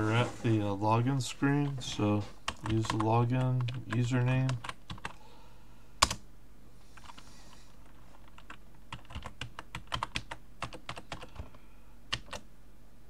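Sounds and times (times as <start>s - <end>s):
computer keyboard typing: 2.5s - 5.2s, 7.8s - 12.4s.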